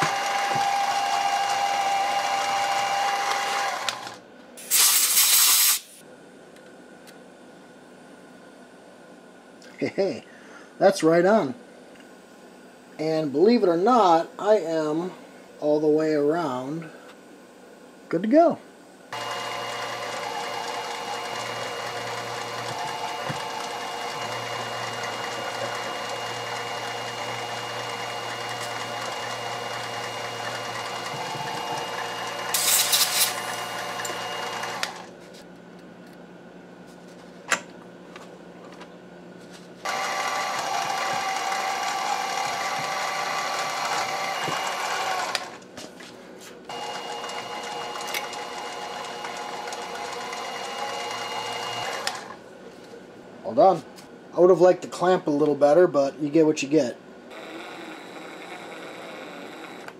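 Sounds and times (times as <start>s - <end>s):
drill press running: 0.0s - 4.8s, 19.1s - 35.1s, 39.8s - 45.7s, 46.7s - 52.4s, 57.3s - 59.9s
high-pitched cutting screech: 31.5s - 34.6s.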